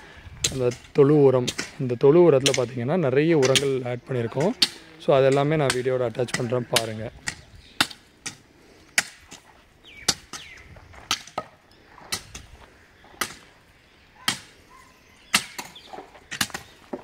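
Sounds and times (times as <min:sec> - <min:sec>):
hand tool striking hard surface: 0:02.4 - 0:02.7, 0:03.4 - 0:03.8.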